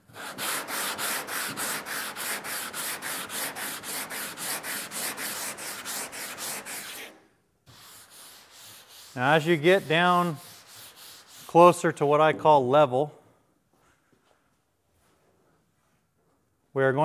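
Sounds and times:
sandpaper sanding filler: 0:00.0 - 0:11.8.

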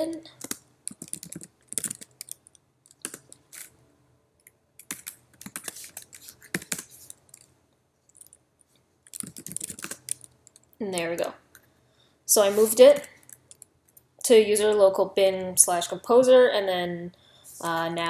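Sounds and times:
typing on keyboard: 0:00.3 - 0:03.4, 0:04.4 - 0:07.5, 0:08.1 - 0:08.4, 0:09.1 - 0:10.8.

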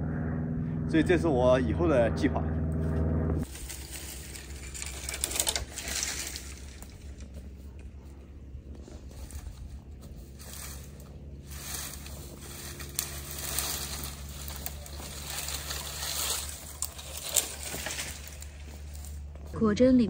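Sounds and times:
faint low hum: 0:00.0 - 0:20.0
branches snapping: 0:03.4 - 0:08.0, 0:09.0 - 0:19.3
brush and dry branches rustling: 0:03.4 - 0:19.6.

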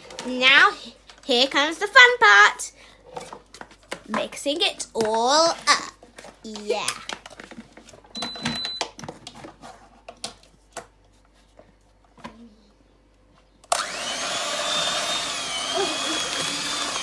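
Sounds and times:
electric hand mixer whining: 0:13.7 - 0:17.0.

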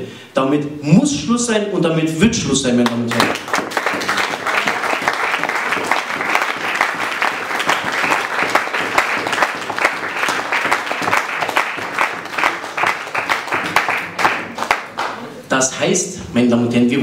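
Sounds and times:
audience applauding: 0:02.8 - 0:15.4.

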